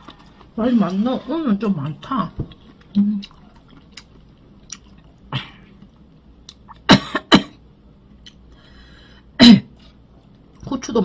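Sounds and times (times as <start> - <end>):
woman coughing: 6.9 - 7.6, 9.4 - 9.7.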